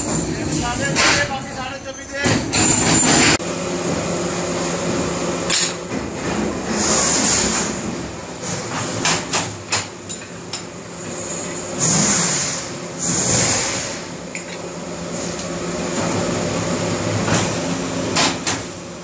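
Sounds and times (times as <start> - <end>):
hiss: 6.7 - 7.7, 11.2 - 14.2.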